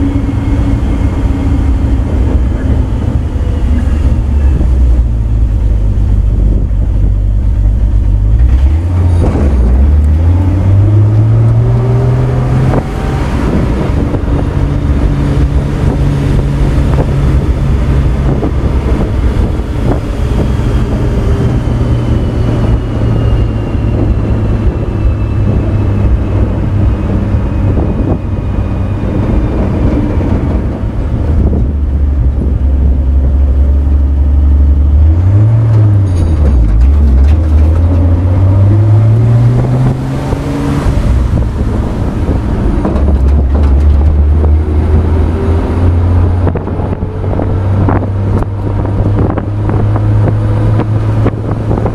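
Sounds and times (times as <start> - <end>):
road noise: 0.0 - 51.9
truck engine drone: 0.0 - 51.9
knocks and rattles: 42.8 - 44.4.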